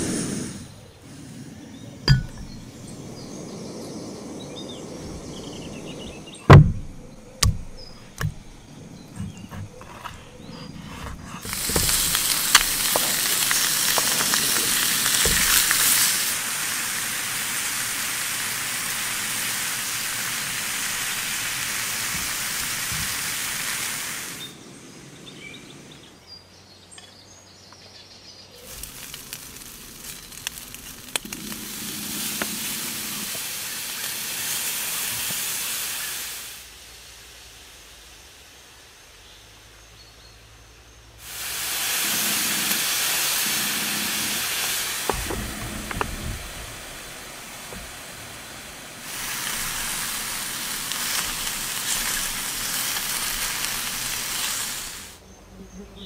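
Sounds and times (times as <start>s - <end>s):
sharp knocks: 2.1s - 2.7s, 6.5s - 8.4s
meat sizzling in a frying pan: 11.4s - 24.4s, 28.7s - 36.6s, 41.2s - 55.2s.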